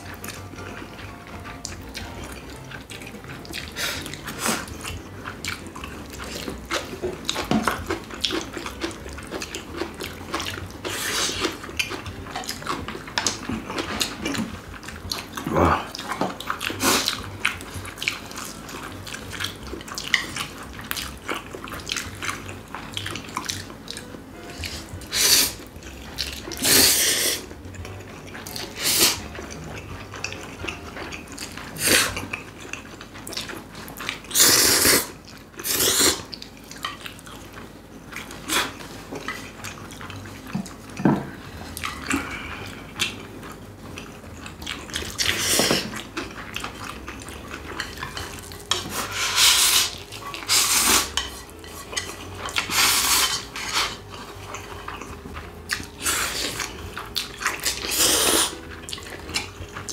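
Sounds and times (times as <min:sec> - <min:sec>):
chewing: 0:00.0 - 0:59.9
loud wet slurping: 0:00.0 - 0:59.9
utensils clicking against bowls: 0:45.1 - 0:55.1.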